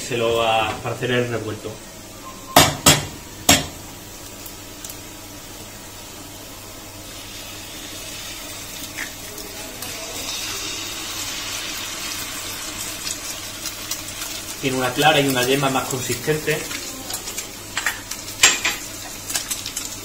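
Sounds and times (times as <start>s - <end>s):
sharp knock: 2.6s - 3.7s
greens sizzling in hot oil: 2.9s - 20.0s.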